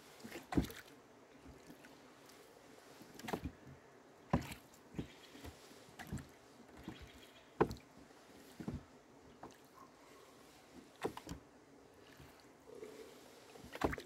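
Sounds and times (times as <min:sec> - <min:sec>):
oars knocking in oarlocks: 0:00.3 - 0:00.9, 0:04.3 - 0:07.9, 0:08.5 - 0:09.6, 0:13.7 - 0:14.0.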